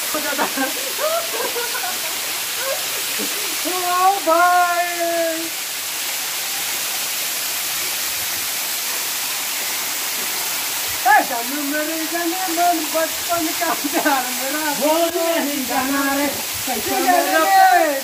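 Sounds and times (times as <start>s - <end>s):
waterfall rushing onto rock: 0.0s - 18.0s
man calling out: 3.6s - 5.6s, 11.0s - 18.0s.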